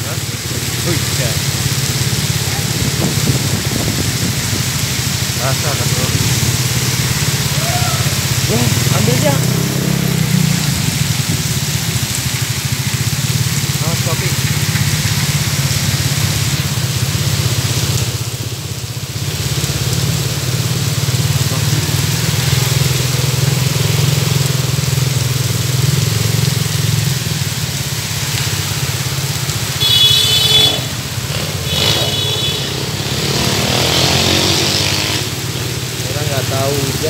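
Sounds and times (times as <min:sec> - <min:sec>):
heavy rain pouring: 0:00.0 - 0:37.0
vehicles driving on wet road: 0:00.0 - 0:37.0
vehicle horn honking: 0:29.8 - 0:31.0, 0:31.6 - 0:32.9.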